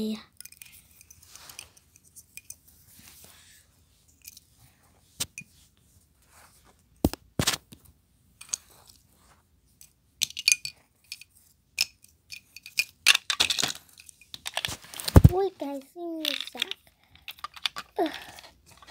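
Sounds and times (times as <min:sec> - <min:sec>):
plastic toy pieces clicking: 0:11.8 - 0:15.3, 0:16.2 - 0:18.9.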